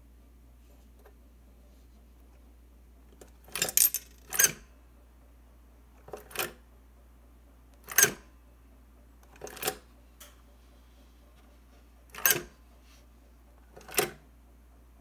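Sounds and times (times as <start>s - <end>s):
metal mechanism clacking: 3.4s - 4.6s, 12.1s - 12.5s
coin dropping: 3.6s - 4.6s.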